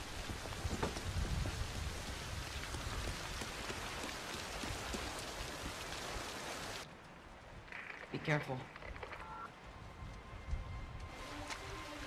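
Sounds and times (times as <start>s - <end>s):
heavy rain pattering: 0.0s - 8.6s.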